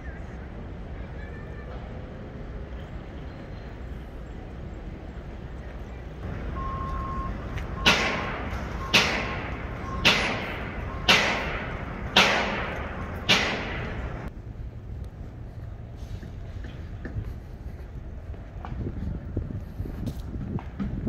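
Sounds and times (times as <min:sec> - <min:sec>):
reversing alarm beeping: 0:06.2 - 0:14.3
hammer striking steel: 0:07.8 - 0:14.3.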